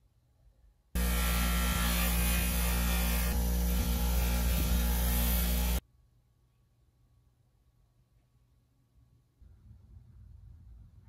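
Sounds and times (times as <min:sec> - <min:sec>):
bench grinder buffing steel pin: 0:01.0 - 0:05.8.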